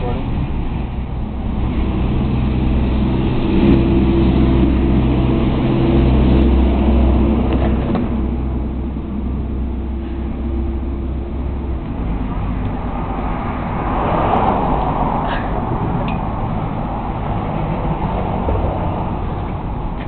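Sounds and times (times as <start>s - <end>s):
motor running drone: 0.0s - 19.9s.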